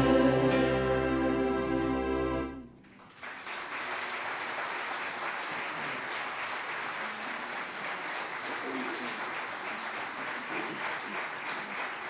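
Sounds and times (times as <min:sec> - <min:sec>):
choir and acoustic ensemble chord: 0:00.0 - 0:02.8
audience applause: 0:02.8 - 0:12.0.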